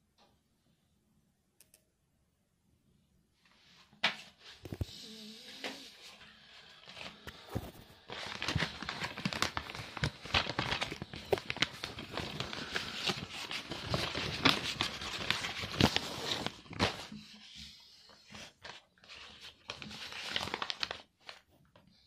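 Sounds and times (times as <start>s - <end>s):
paper packaging crinkling: 6.1s - 21.9s.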